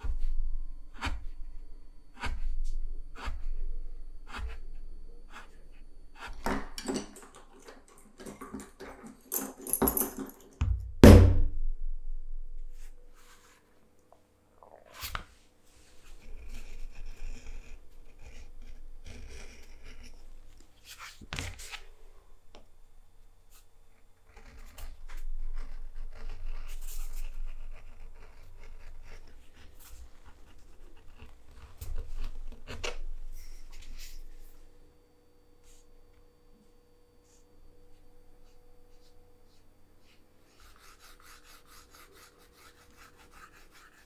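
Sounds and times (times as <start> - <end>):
beveler scraping leather: 16.1 - 20.3, 24.3 - 32.8.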